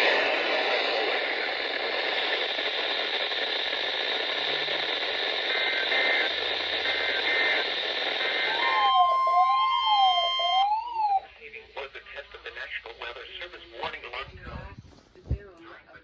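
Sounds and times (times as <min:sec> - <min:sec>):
radio static hiss: 0:00.0 - 0:09.9, 0:11.0 - 0:16.0
steady alarm tone: 0:05.4 - 0:11.3
siren sweeping up and down: 0:08.4 - 0:11.3.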